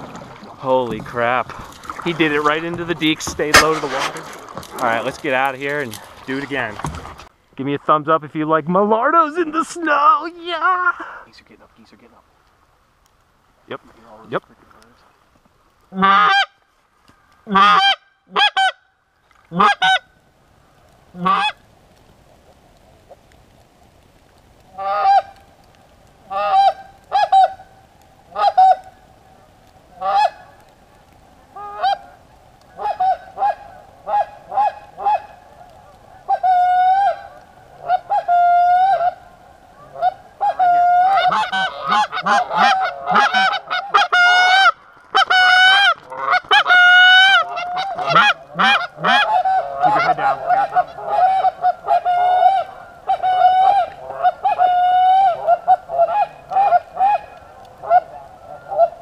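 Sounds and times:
geese honking: 16.0 - 16.6, 17.4 - 18.8, 19.5 - 20.1, 21.2 - 21.6, 24.7 - 25.4, 26.2 - 59.0.

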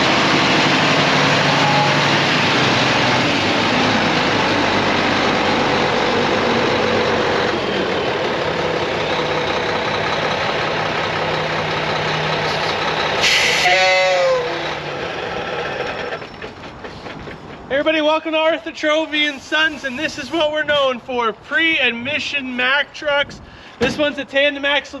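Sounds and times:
diesel truck engine idling: 0.0 - 17.7.

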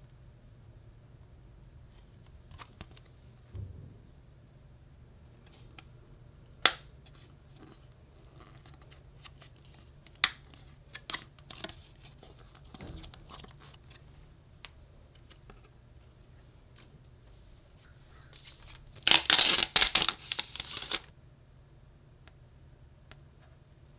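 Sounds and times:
paper rustling: 18.4 - 21.0.

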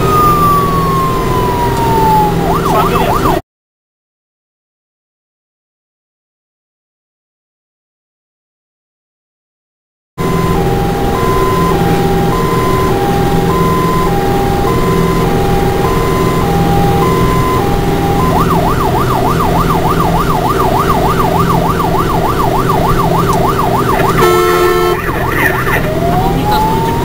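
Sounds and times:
engine and road noise: 0.0 - 3.4, 10.2 - 27.0
fire engine siren: 0.0 - 3.4, 10.2 - 27.0.

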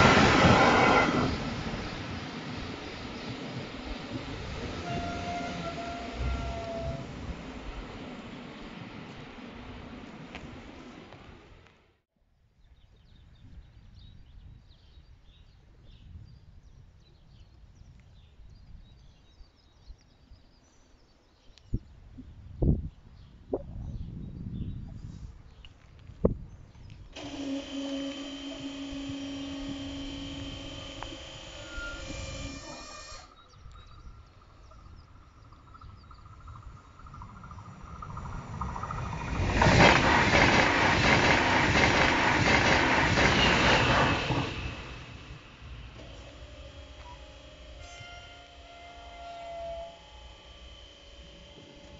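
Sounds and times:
wheels clattering on rails: 0.0 - 11.8, 34.6 - 48.3
low outdoor rumble: 0.0 - 12.0, 33.4 - 47.9
train passing: 0.0 - 12.0, 27.2 - 33.4, 34.0 - 51.9
level crossing warning tone: 27.2 - 33.3.

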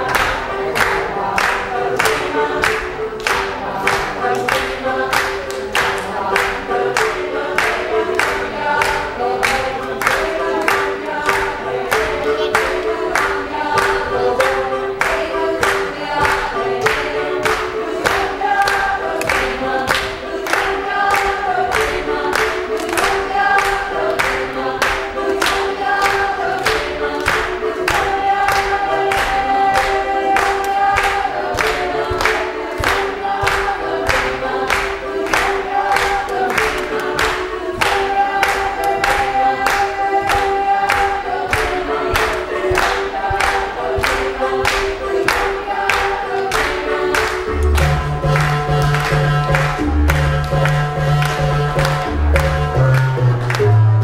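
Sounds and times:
marimba ensemble playing: 47.5 - 54.0.

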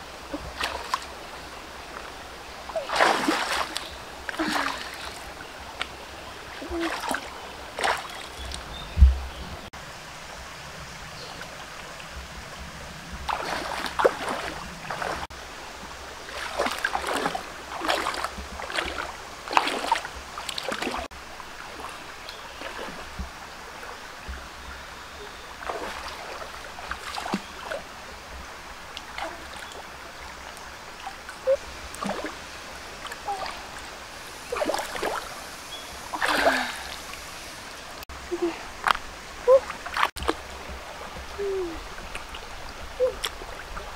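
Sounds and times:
shallow stream running: 0.0 - 43.9
splashes from wading in water: 0.3 - 1.2, 2.7 - 5.9, 6.5 - 8.7, 13.3 - 15.3, 16.3 - 21.1, 21.7 - 23.2, 25.5 - 27.9, 31.0 - 37.4, 38.3 - 43.9.

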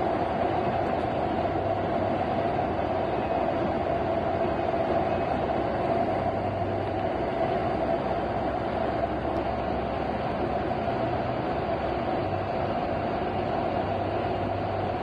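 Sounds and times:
constant low hum: 0.0 - 15.0
heavy rain: 0.0 - 15.0.

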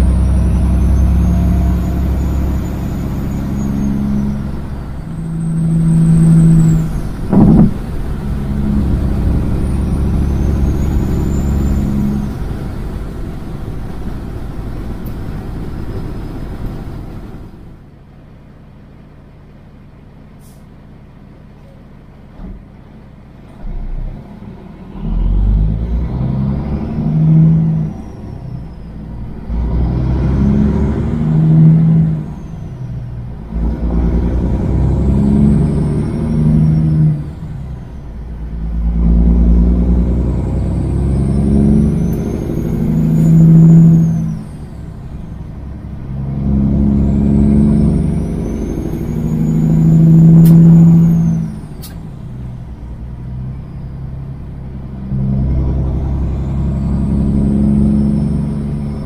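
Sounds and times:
engine revving: 0.0 - 17.6, 24.0 - 59.0
diesel truck engine running: 0.0 - 59.0
sharp click: 51.8 - 52.0.

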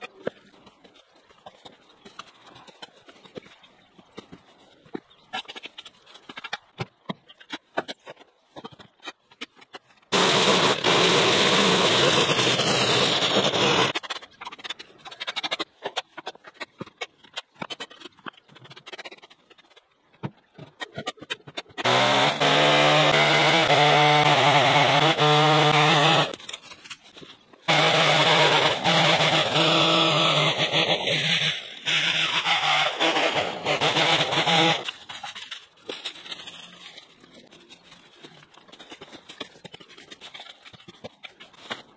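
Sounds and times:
shovel and rake scraping gravel: 34.2 - 41.9.

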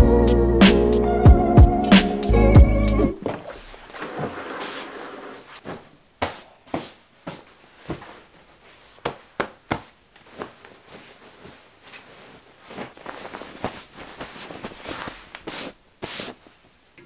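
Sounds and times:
hands patting pillows: 3.2 - 16.6
bedding rustling: 3.2 - 16.9.

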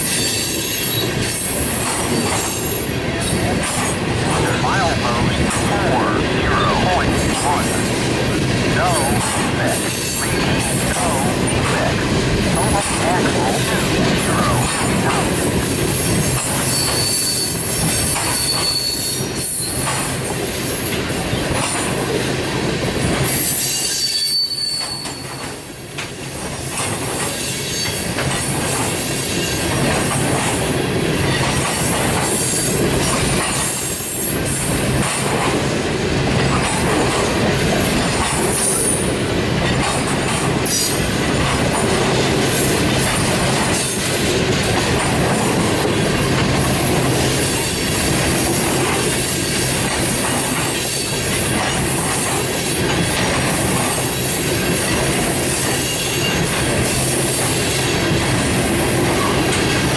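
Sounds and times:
train wheels rumbling on track: 0.0 - 59.9
wheel squeals: 16.6 - 19.8, 23.4 - 25.5.

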